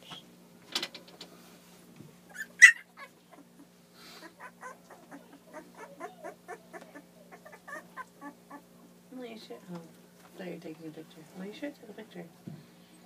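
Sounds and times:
puppy sharp cry: 0:02.3 - 0:03.1, 0:04.4 - 0:08.6
puppies whimpering and squeaking: 0:02.3 - 0:08.7.

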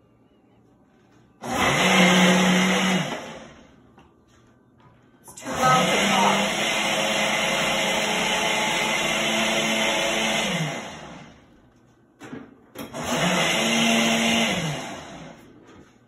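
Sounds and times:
blender motor pulsing: 0:01.4 - 0:03.5, 0:05.3 - 0:11.4, 0:12.9 - 0:15.4.

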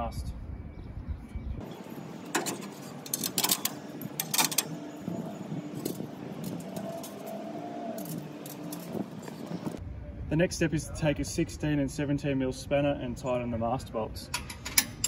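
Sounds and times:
metal bolts clinking and knocking: 0:01.6 - 0:09.8, 0:14.3 - 0:15.0.

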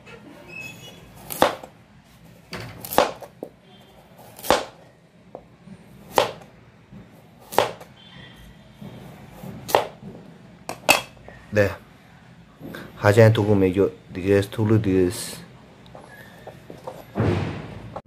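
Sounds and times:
knife slicing potato: 0:01.1 - 0:01.7, 0:02.7 - 0:03.4, 0:04.2 - 0:04.8, 0:06.0 - 0:06.4, 0:07.4 - 0:07.9, 0:09.3 - 0:10.0.

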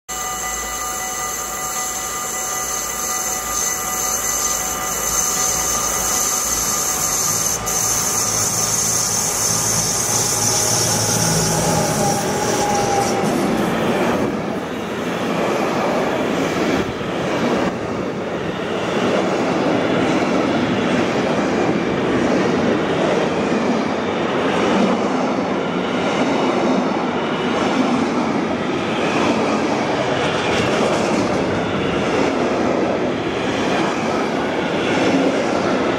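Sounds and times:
locomotive whine and hiss: 0:00.1 - 0:19.0
train wagons rumbling: 0:29.0 - 0:35.9.

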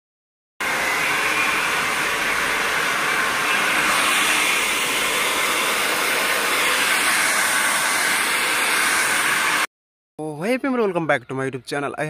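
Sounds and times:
hair dryer blowing: 0:00.6 - 0:09.7.

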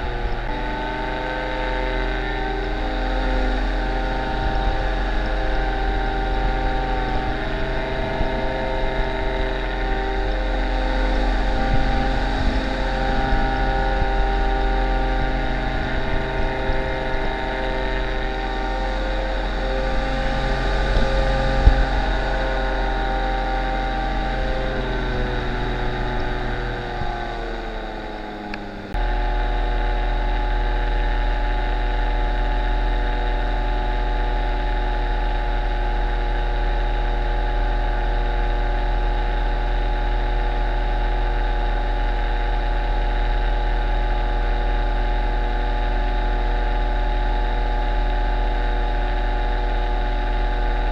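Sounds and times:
wind on microphone: 0:00.0 - 0:35.2
paramotor engine and propeller: 0:00.0 - 0:50.9.

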